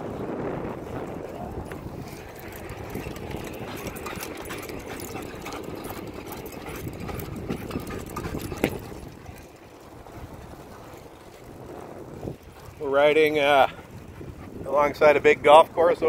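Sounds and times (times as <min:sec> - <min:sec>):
bicycle rolling over asphalt: 0:00.0 - 0:15.8
wind buffeting microphone: 0:00.0 - 0:16.0
rattles and clicks: 0:01.6 - 0:09.6.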